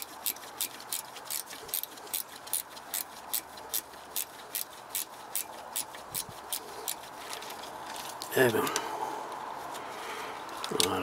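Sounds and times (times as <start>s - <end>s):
ratchet wrench clicking: 0.0s - 7.1s.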